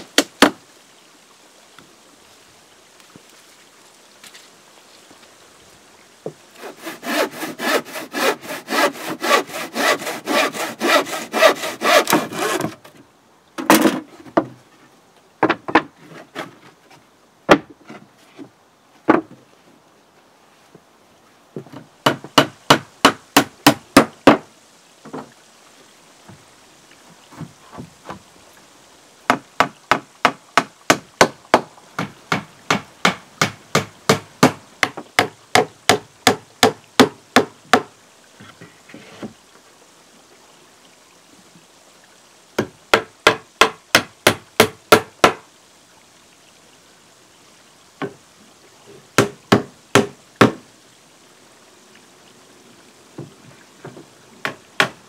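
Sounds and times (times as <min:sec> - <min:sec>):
hammer striking timber boards: 0:22.0 - 0:24.4, 0:29.3 - 0:37.9, 0:42.6 - 0:45.4, 0:49.2 - 0:50.6, 0:54.4 - 0:55.0.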